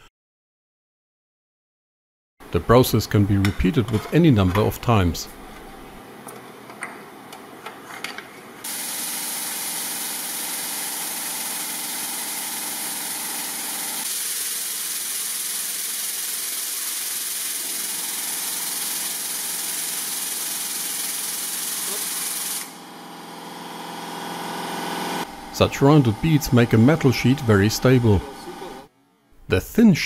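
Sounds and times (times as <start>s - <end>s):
loud steady hiss: 18.4s - 22.8s.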